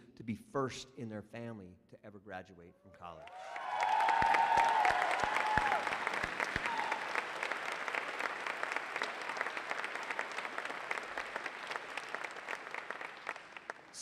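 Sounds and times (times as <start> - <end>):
audience applauding: 3.2 - 14.0.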